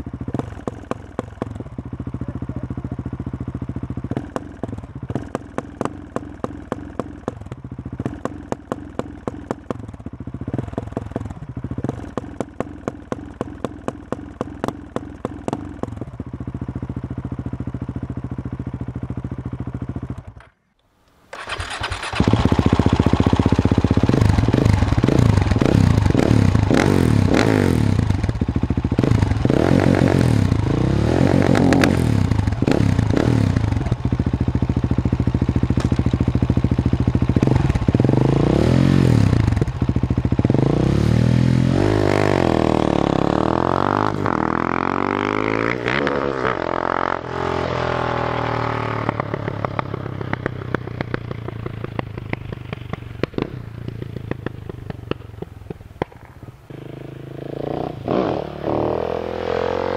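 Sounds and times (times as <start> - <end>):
motorcycle engine revving: 0.0 - 20.6, 21.3 - 59.9
exhaust pops crackling: 50.2 - 56.6.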